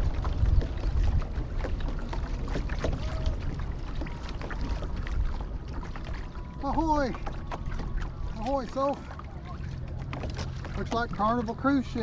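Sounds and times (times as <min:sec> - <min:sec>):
wind on microphone: 0:00.0 - 0:08.5
water splashing against kayak: 0:00.0 - 0:12.0.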